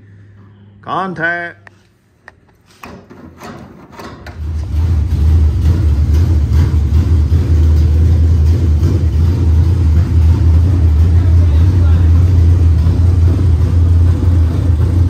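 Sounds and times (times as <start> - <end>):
engine cranking on starter: 3.2 - 15.0
engine running loud: 4.4 - 15.0.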